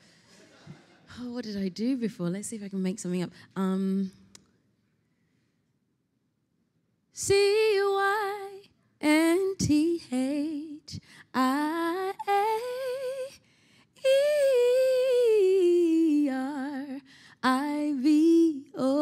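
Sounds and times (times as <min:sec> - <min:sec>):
woman singing unaccompanied: 0:07.2 - 0:13.4, 0:14.0 - 0:19.0.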